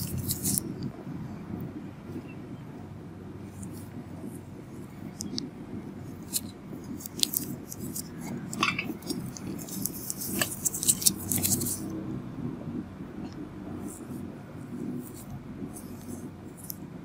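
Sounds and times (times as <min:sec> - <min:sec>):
clicks and scratchy crackles: 0:00.0 - 0:00.9, 0:03.5 - 0:12.0, 0:13.2 - 0:16.9
steady low hum: 0:00.0 - 0:17.0.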